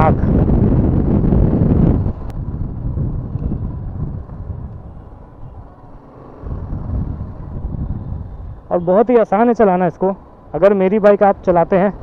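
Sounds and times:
wind rush on microphone: 0.0 - 9.6
motorcycle engine: 0.0 - 12.0.

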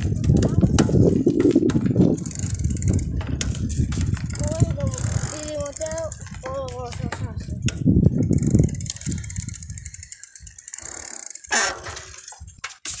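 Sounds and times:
low rumble on microphone: 0.0 - 9.8
bicycle freewheel ticking: 0.0 - 13.0.

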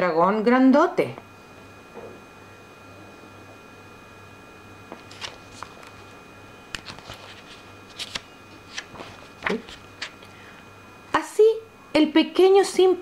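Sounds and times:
paper pages rustling: 4.9 - 10.4.

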